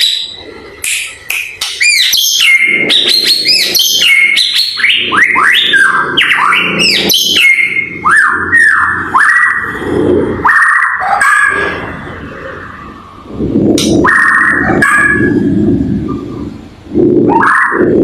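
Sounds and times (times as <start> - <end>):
sharp bird clicks: 0.8 - 2.2
bird singing whistled notes: 1.8 - 9.0.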